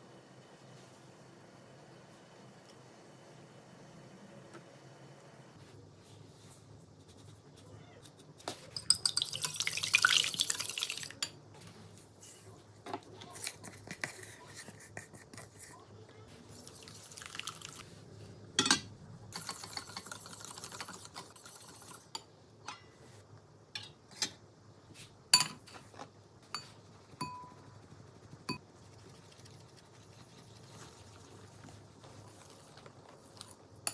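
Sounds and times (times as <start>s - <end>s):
utensils clinking on glass and metal: 8.8s - 9.7s
whisk beating in glass bowl: 26.5s - 33.5s.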